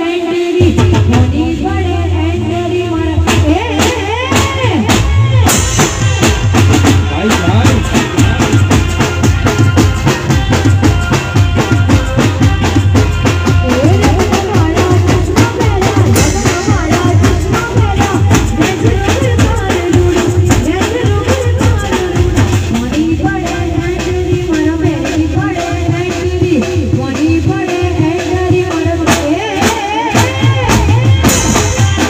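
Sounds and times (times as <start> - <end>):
woman singing: 0.0 - 6.1, 8.2 - 32.0
drums playing fast beat: 0.0 - 32.0
keyboard music: 5.1 - 27.0.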